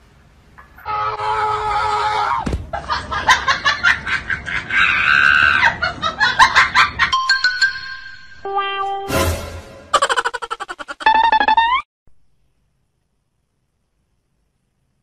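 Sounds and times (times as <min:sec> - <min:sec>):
person laughing hard: 0:09.9 - 0:11.8.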